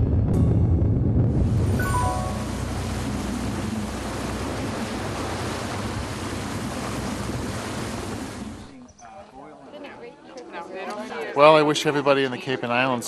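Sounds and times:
low rumble: 0:00.0 - 0:06.4
wind on microphone: 0:00.0 - 0:08.7
sea water rushing: 0:01.4 - 0:08.8.

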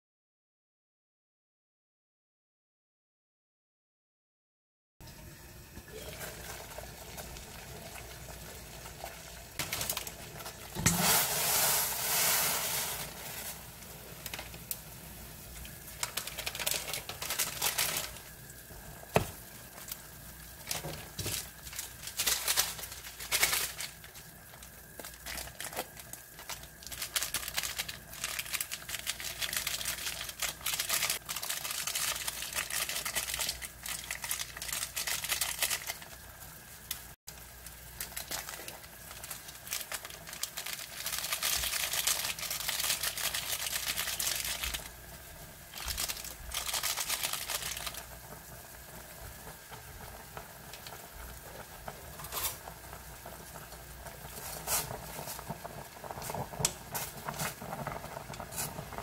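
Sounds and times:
water boiling in a pot: 0:05.0 - 0:59.0
sachet crinkling and rustling: 0:15.6 - 0:18.4, 0:20.6 - 0:36.2, 0:37.9 - 0:44.9, 0:45.7 - 0:48.1.

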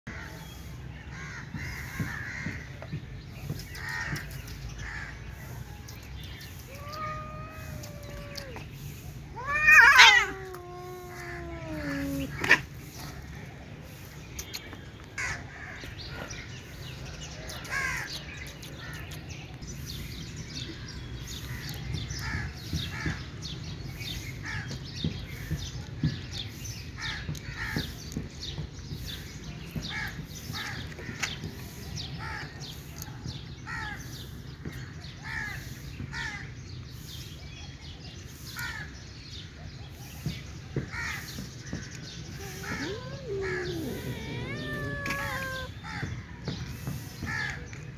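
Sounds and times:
cat meowing: 0:06.6 - 0:08.7, 0:09.3 - 0:12.6, 0:42.4 - 0:45.8.

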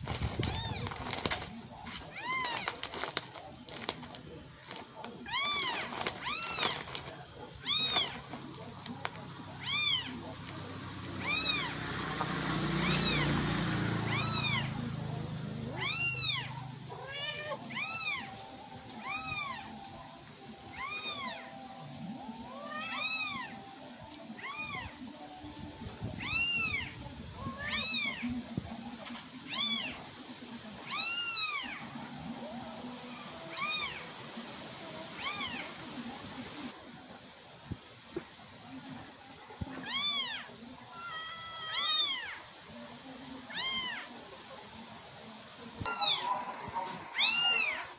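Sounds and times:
kitten meowing: 0:11.2 - 0:11.7, 0:12.8 - 0:13.3, 0:14.0 - 0:14.8, 0:15.7 - 0:18.3, 0:47.1 - 0:47.9.

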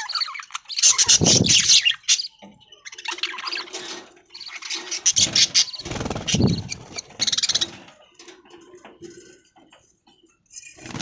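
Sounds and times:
budgerigars chattering and chirping: 0:00.0 - 0:07.9.

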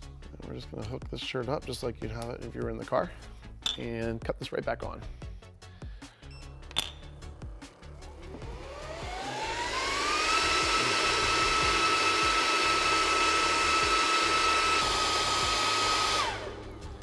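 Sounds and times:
cooling unit motor whine: 0:08.0 - 0:17.0.

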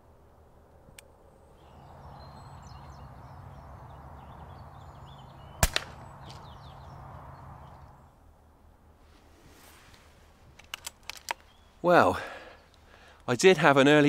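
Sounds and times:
faint bird chirps: 0:01.4 - 0:08.3, 0:11.3 - 0:13.1
pellet impact crack: 0:05.6 - 0:06.4
air rifle shot: 0:05.6 - 0:06.5
outdoor hiss: 0:11.4 - 0:13.8.

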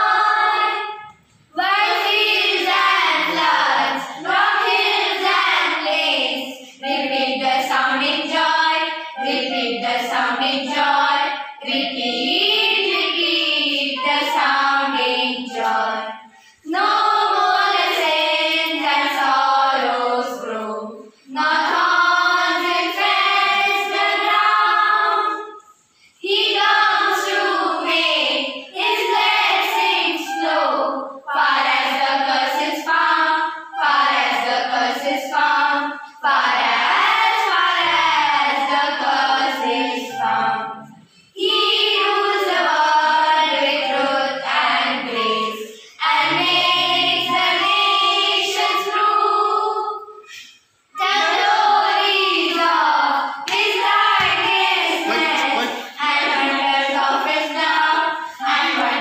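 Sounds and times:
girls choir singing in unison: 0:00.0 - 0:59.0
recorder playing: 0:09.0 - 0:17.7, 0:28.8 - 0:49.3, 0:53.8 - 0:59.0.

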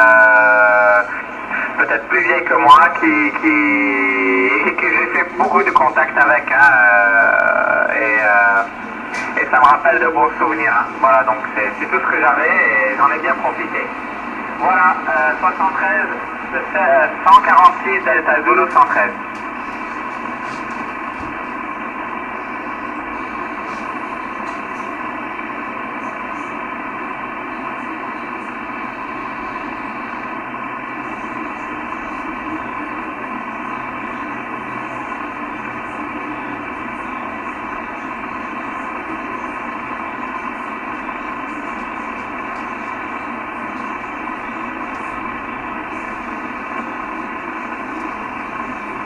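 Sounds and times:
radio static hiss: 0:00.0 - 0:49.0.

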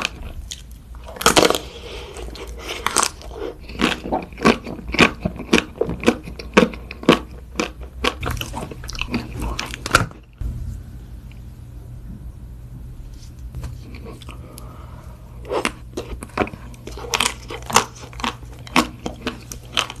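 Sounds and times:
crunching ice cream coating: 0:00.0 - 0:10.4, 0:15.4 - 0:20.0.

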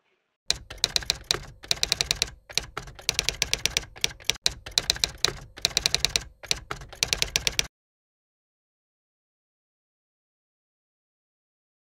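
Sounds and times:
typewriter key clacks: 0:00.5 - 0:07.7.

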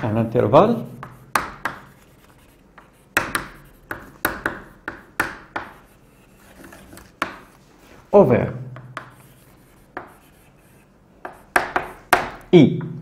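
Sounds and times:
chalk tapping and scraping: 0:00.0 - 0:13.0.

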